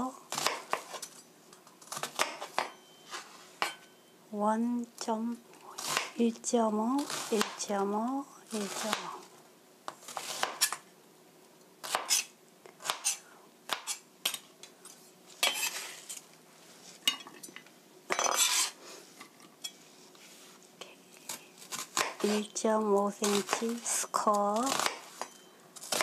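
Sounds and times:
knife chopping on cutting board: 0:01.9 - 0:02.8, 0:09.9 - 0:10.8, 0:11.8 - 0:14.0, 0:15.4 - 0:15.8
knife blade scraping board: 0:15.4 - 0:16.2, 0:18.1 - 0:18.8.

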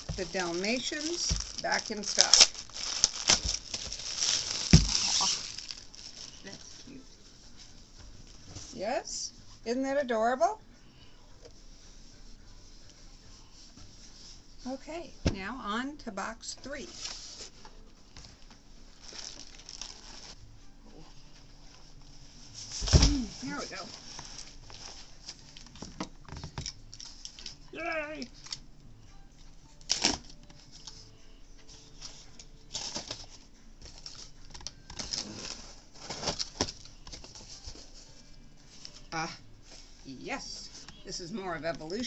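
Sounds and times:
cardboard box rustling: 0:00.0 - 0:06.3.

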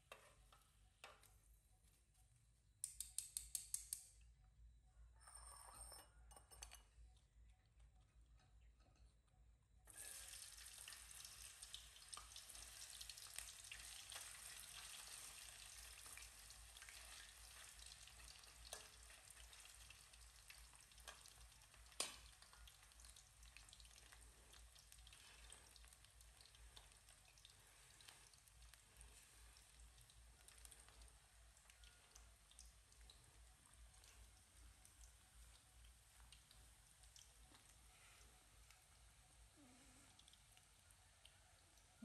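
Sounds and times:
fries sizzling in hot oil: 0:09.9 - 0:39.6.

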